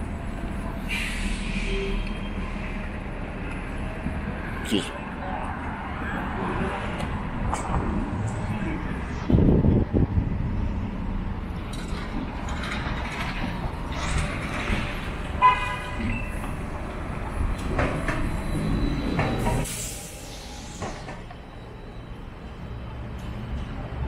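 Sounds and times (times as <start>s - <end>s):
trolleybus running: 0.0s - 24.0s.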